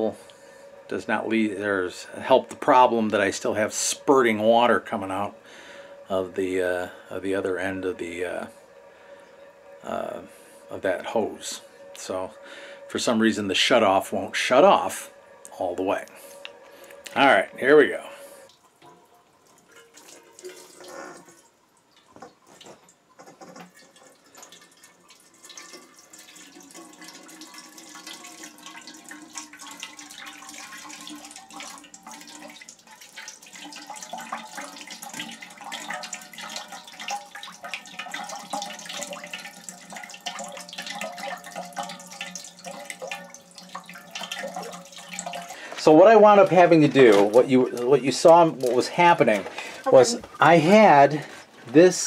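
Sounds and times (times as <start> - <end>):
faint steady whine: 0.0 - 24.6, 29.1 - 52.0
water hissing under pressure: 38.3 - 51.5.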